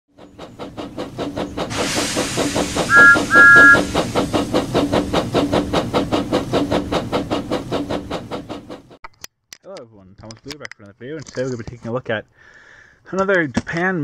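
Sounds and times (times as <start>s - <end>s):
steam locomotive chuffing: 0.1s - 9.0s
hiss of steam: 1.0s - 8.3s
steam whistle blowing: 2.8s - 4.0s.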